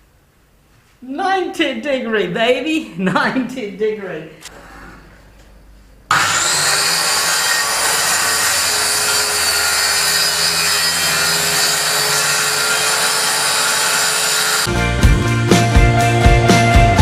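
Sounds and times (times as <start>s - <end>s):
circular saw cutting plywood: 6.1s - 14.7s.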